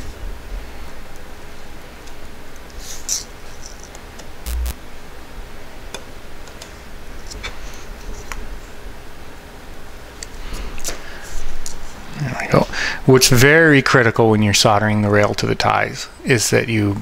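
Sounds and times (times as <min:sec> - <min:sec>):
flux sizzling under soldering iron: 0:04.5 - 0:04.8.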